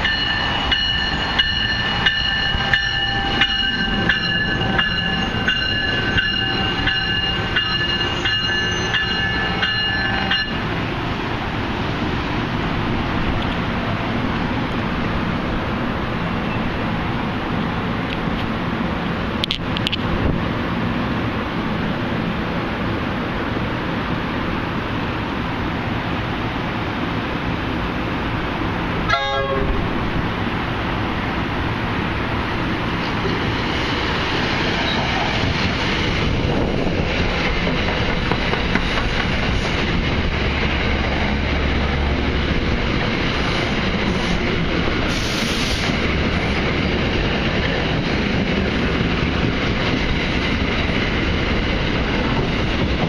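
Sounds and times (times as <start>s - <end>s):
train rolling past: 0.0s - 53.0s
wheels clattering on rails: 32.9s - 45.0s.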